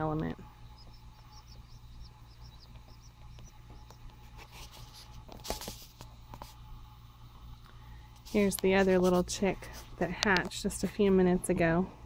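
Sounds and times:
chicks peeping: 0:00.0 - 0:05.0
rustles: 0:03.7 - 0:06.6.

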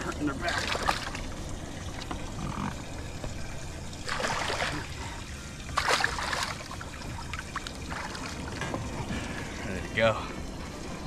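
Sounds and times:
fish splashing in water: 0:00.4 - 0:02.2, 0:04.0 - 0:08.6.

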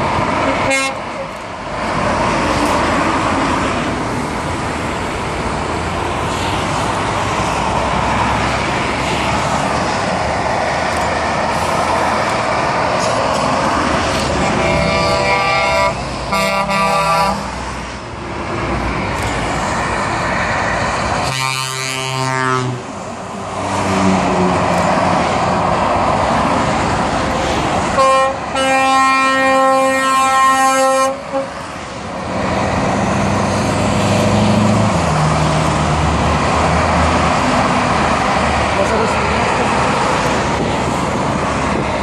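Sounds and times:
motorway traffic noise: 0:00.0 - 0:42.0
truck air horns: 0:00.4 - 0:01.3, 0:14.2 - 0:17.6, 0:21.2 - 0:23.0, 0:27.9 - 0:31.7.

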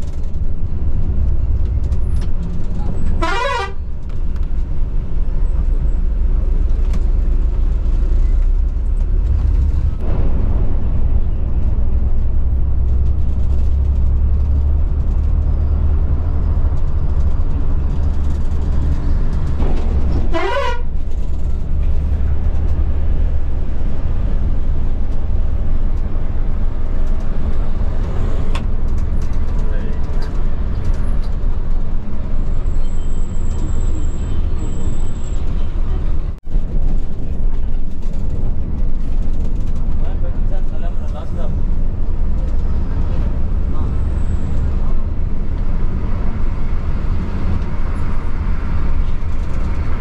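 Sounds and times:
diesel engine drone: 0:00.0 - 0:31.9
road noise: 0:00.0 - 0:50.0
vehicle horn: 0:03.2 - 0:03.8, 0:20.3 - 0:20.9.

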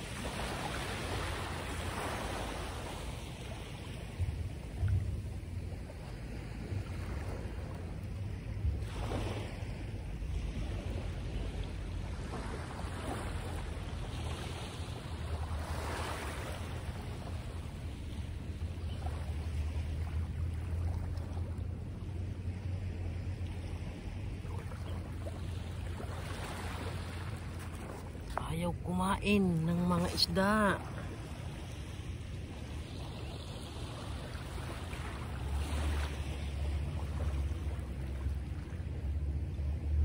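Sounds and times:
wind rumbling on microphone: 0:00.0 - 0:29.8.

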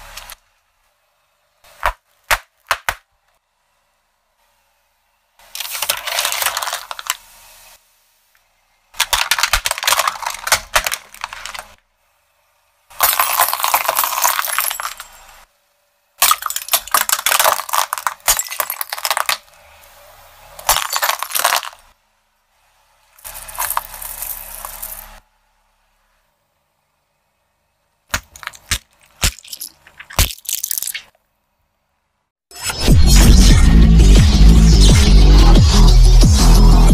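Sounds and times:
tyre crunching objects: 0:09.0 - 0:11.8, 0:20.6 - 0:21.8, 0:23.2 - 0:25.2, 0:28.1 - 0:31.1
coins clinking under tyre: 0:13.0 - 0:15.4, 0:23.2 - 0:25.2.

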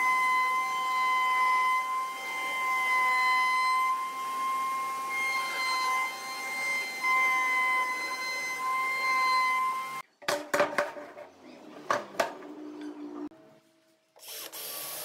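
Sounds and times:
router whining while routing wood: 0:00.0 - 0:10.0.

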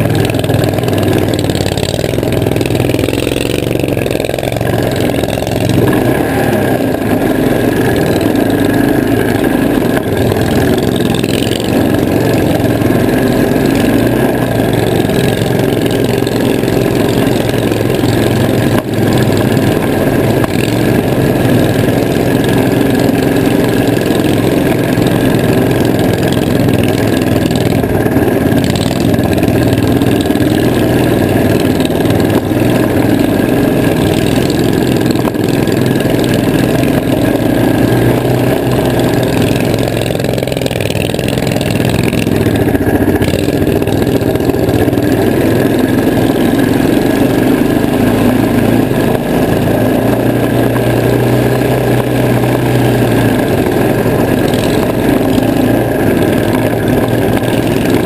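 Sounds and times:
vehicle engine running: 0:00.0 - 0:58.0.

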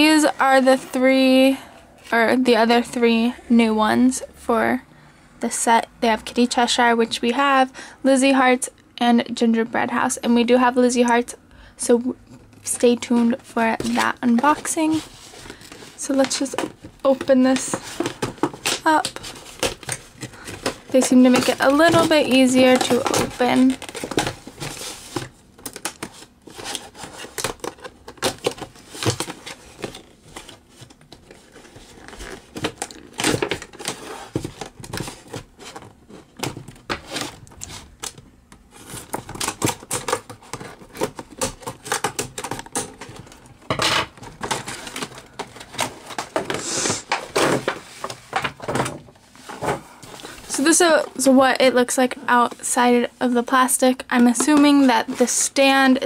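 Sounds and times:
cardboard and plastic being handled: 0:12.2 - 0:56.0.

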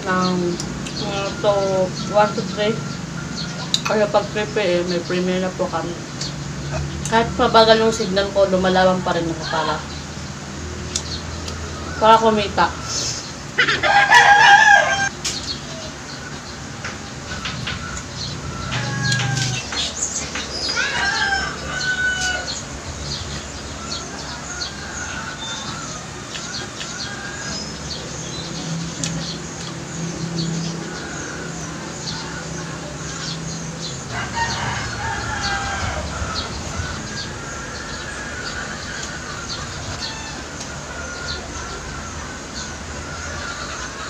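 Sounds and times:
small birds chirping: 0:00.0 - 0:44.0
poultry clucking: 0:10.9 - 0:15.1, 0:15.7 - 0:44.0
rooster crowing: 0:13.6 - 0:15.1, 0:17.3 - 0:22.7, 0:23.8 - 0:28.3, 0:30.6 - 0:43.8.

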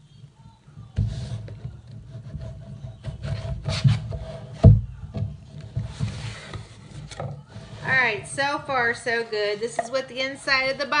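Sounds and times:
cardboard box scraping and rubbing: 0:01.0 - 0:04.7, 0:05.5 - 0:08.2.

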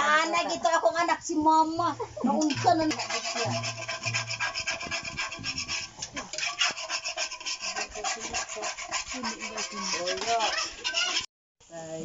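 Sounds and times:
metal spatula scraping wok: 0:02.2 - 0:11.3.

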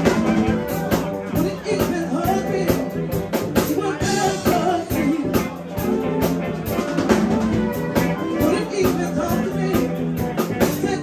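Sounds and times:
woman singing: 0:00.0 - 0:05.6, 0:08.2 - 0:11.0
bass: 0:00.0 - 0:11.0
drum kit: 0:00.0 - 0:11.0
electric guitars: 0:00.0 - 0:11.0
saxophone: 0:03.9 - 0:11.0.

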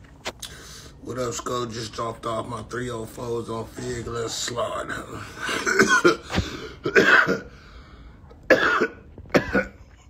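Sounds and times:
man coughing: 0:05.2 - 0:07.6, 0:08.5 - 0:10.0
man clearing throat: 0:05.3 - 0:07.5, 0:08.5 - 0:10.0.

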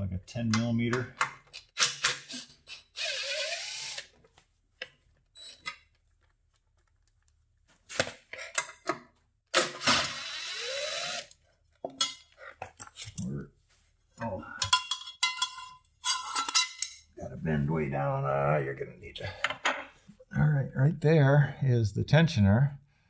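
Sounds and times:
tool and screws clinking: 0:00.5 - 0:04.0, 0:14.6 - 0:17.1
cordless drill motor running: 0:03.0 - 0:04.1, 0:09.8 - 0:11.4.

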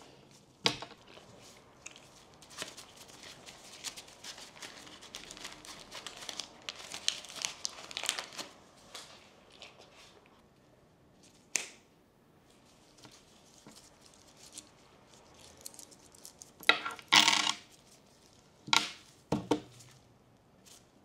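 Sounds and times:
coins clinking on a tabletop: 0:16.7 - 0:17.7.

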